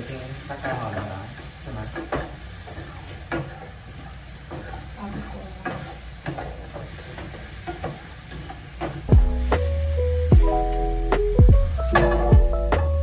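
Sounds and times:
vegetables sizzling in frying pan: 0:00.0 - 0:13.0
spatula scraping and knocking pan: 0:00.6 - 0:09.7.

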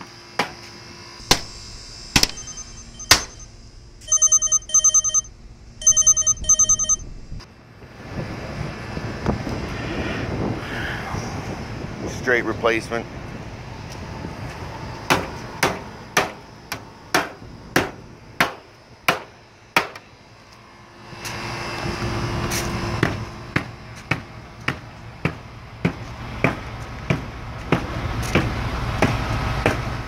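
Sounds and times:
steady low rumble: 0:01.1 - 0:20.8
hammer striking sheet metal: 0:02.2 - 0:03.4.

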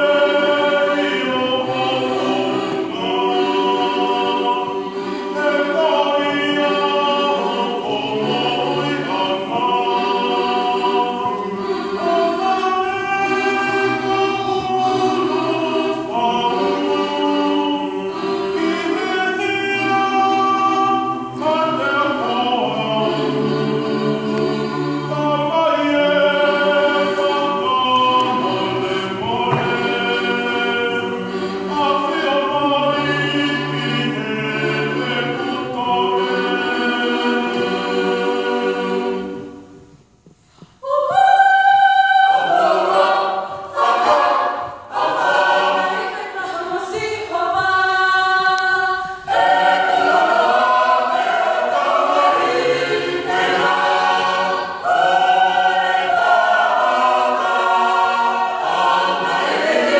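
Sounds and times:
choir singing a hymn a cappella: 0:00.0 - 0:59.9.

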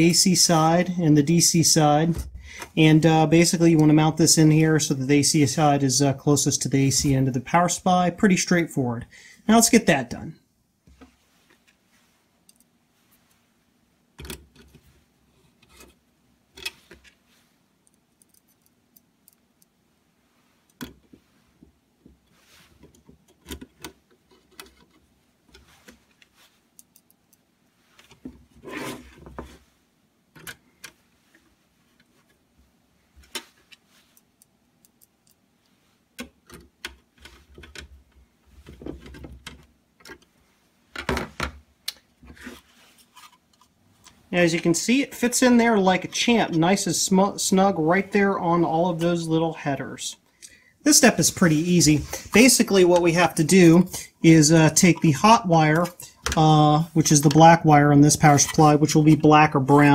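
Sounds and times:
rustling: 0:10.8 - 0:13.8, 0:14.5 - 0:30.0, 0:30.6 - 0:47.2.

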